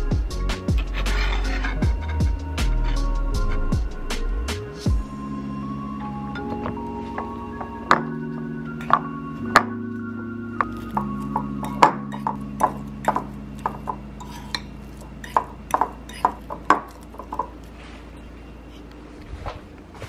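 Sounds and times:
fork clinking against ceramic bowl: 10.9s - 17.5s.

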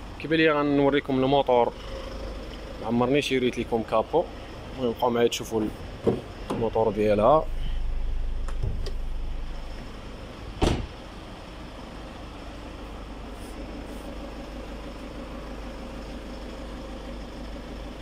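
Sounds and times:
steady low hum: 1.0s - 18.0s
loud car body clunk: 6.0s - 6.6s, 8.3s - 9.6s, 10.5s - 11.0s.

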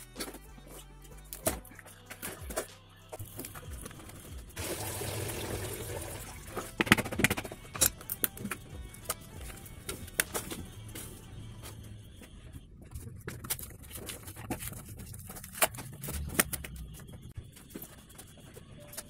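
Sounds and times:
background music: 0.0s - 19.0s
cardboard and wood cracking: 12.9s - 17.0s.

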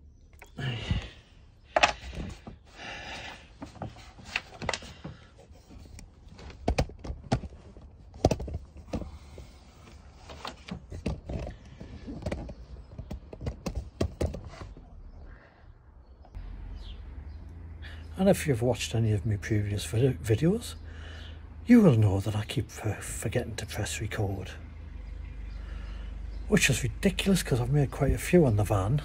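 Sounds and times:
phone handling rubbing: 3.6s - 14.9s.

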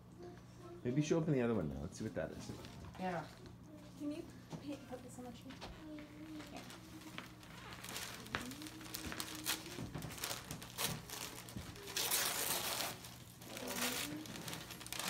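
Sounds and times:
wrapping paper tearing and crinkling: 6.1s - 15.0s.

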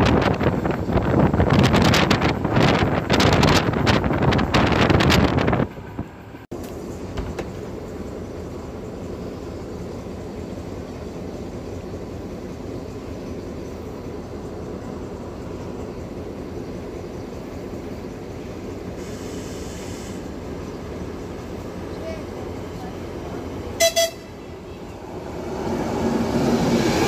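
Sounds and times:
train rumbling: 0.0s - 27.0s
high hiss: 12.5s - 23.7s.

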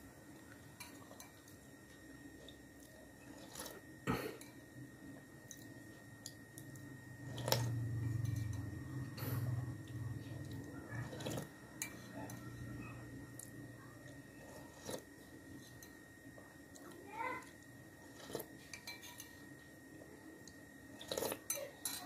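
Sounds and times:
metal spoon clinking on ceramic bowl: 18.7s - 19.3s, 21.5s - 22.0s
sipping and wet chewing: 20.5s - 21.5s.

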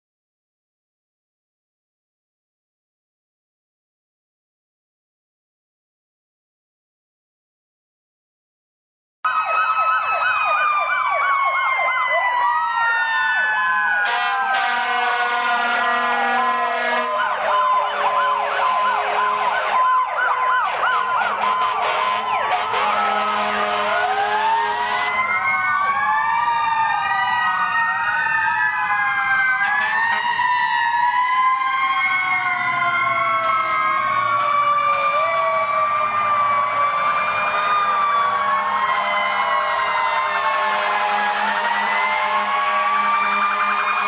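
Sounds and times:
fire truck sirens: 9.3s - 44.0s.

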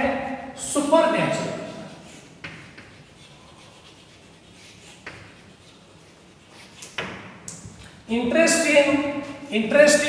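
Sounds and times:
chalk scratching on blackboard: 1.1s - 7.7s, 8.5s - 10.0s
chalk tapping on board: 1.9s - 7.8s.

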